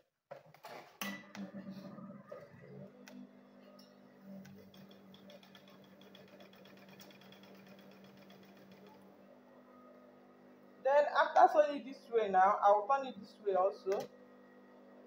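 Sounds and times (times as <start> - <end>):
sewing machine motor hum: 1.6 - 10.7.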